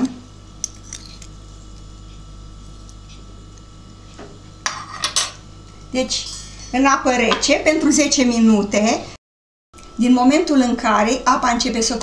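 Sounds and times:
low steady hum: 0:00.0 - 0:09.2.

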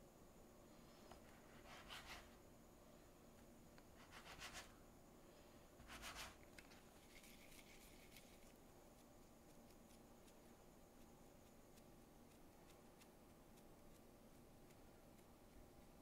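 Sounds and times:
hands rubbing sticky dough: 0:01.1 - 0:02.4, 0:04.0 - 0:04.8, 0:05.8 - 0:16.0
knife scraping cutting board: 0:01.5 - 0:02.3.

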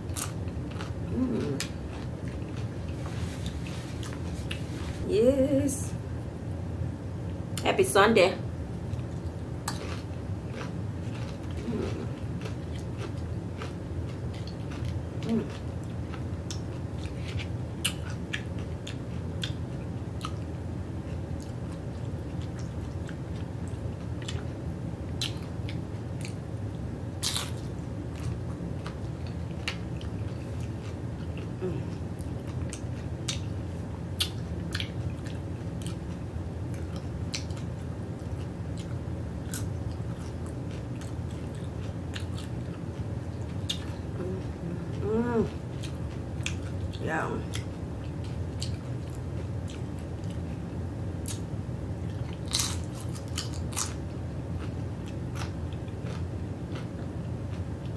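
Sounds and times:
steady low hum: 0:00.0 - 0:57.9
chewing crunchy chips: 0:00.1 - 0:04.6, 0:08.9 - 0:20.5, 0:27.2 - 0:33.6, 0:34.2 - 0:44.6, 0:52.1 - 0:57.9.

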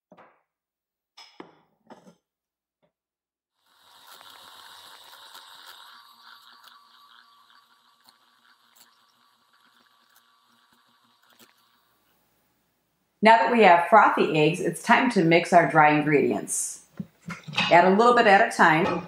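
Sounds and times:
electric hand mixer running: 0:03.6 - 0:12.2.

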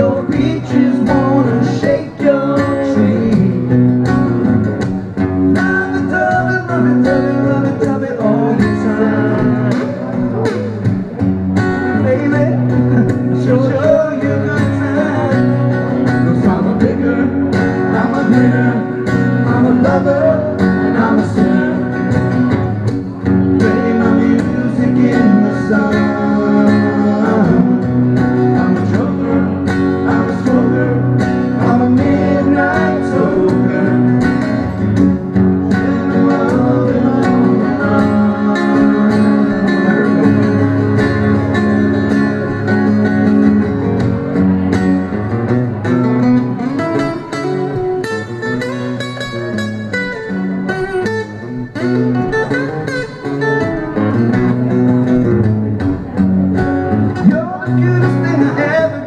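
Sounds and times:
man singing: 0:00.0 - 0:04.5, 0:05.4 - 0:10.9, 0:11.8 - 0:42.2, 0:57.1 - 0:59.0
acoustic guitars strummed: 0:00.0 - 0:59.0.

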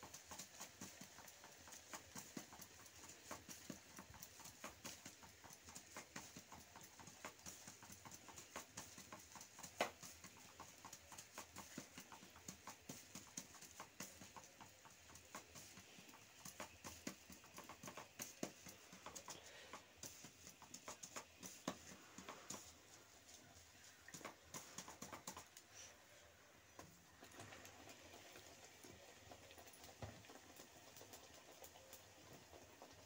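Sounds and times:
hands patting dough: 0:00.0 - 0:26.0.

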